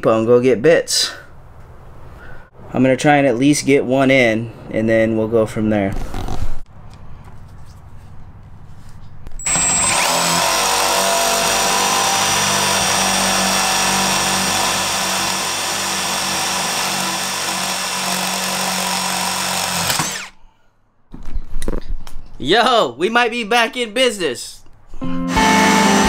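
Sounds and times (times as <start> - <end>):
cordless drill boring into steel: 9.4 - 20.4.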